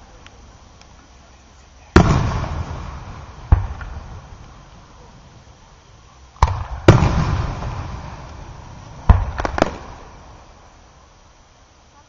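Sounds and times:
firework shells bursting: 0:01.9 - 0:11.3.

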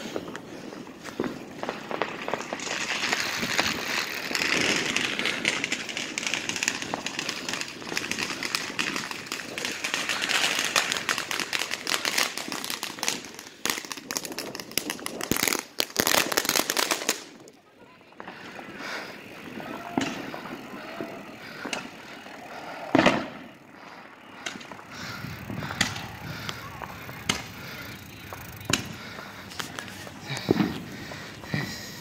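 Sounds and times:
fireworks crackling: 0:00.0 - 0:32.0.

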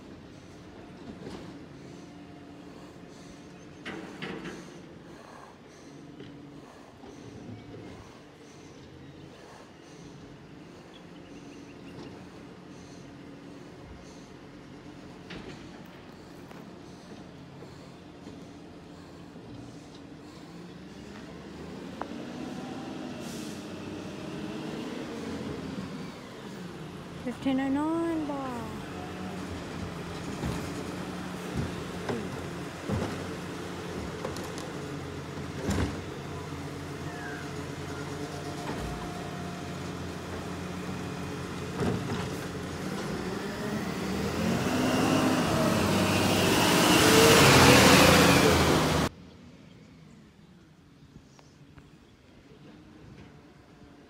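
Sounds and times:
diesel truck engine running: 0:00.0 - 0:49.1.

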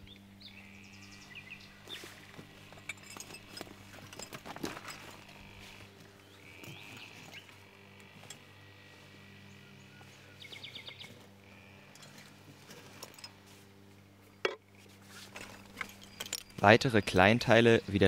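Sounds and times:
faint birdsong: 0:00.0 - 0:18.0
low steady hum: 0:00.0 - 0:18.0
metal rods clicking: 0:15.3 - 0:16.7.

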